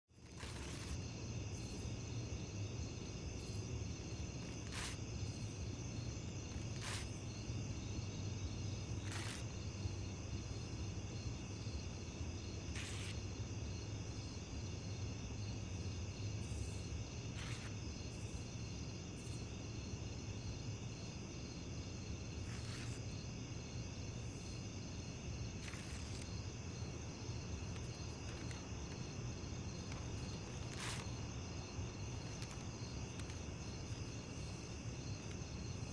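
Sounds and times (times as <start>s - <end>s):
paper crackling: 27.7s - 31.2s, 32.1s - 34.0s.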